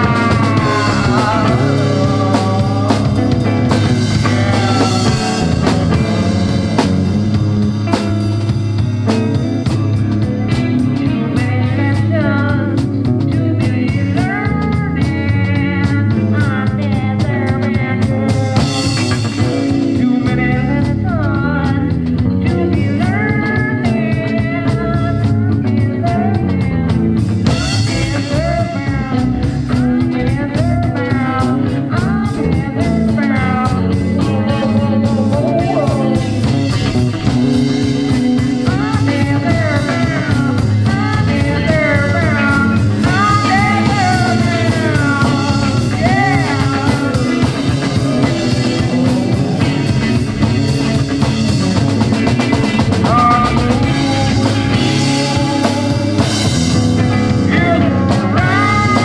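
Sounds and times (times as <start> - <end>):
psychedelic rock music: 0.0 - 59.0.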